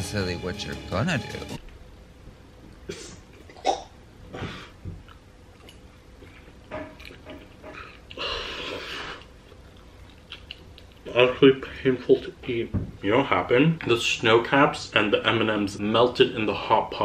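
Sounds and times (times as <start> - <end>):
chewing: 5.0 - 11.2.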